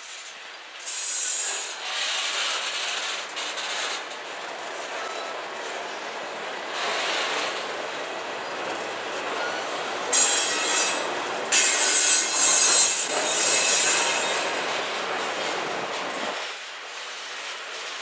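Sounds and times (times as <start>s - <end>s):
train wheels rumbling on rail: 0.0s - 18.0s
wheels squealing: 9.4s - 14.9s.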